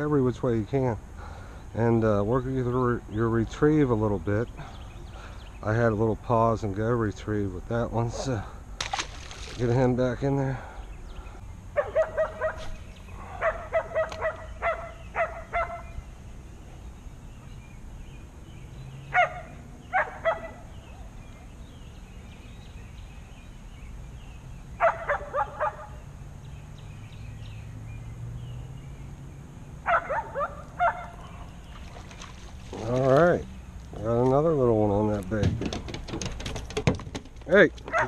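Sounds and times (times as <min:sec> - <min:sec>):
dog barking: 0:11.8 - 0:15.9, 0:19.1 - 0:20.6, 0:24.8 - 0:25.9, 0:29.9 - 0:31.3.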